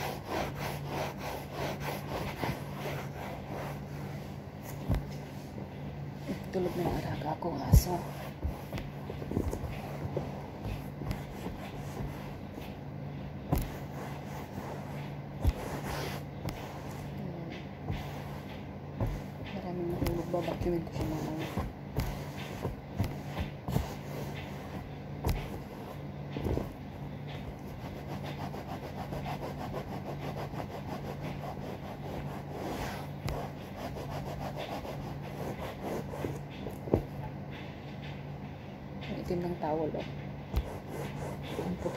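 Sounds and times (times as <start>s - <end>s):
cloth rustling against sofa: 0.0s - 38.2s, 40.5s - 41.9s.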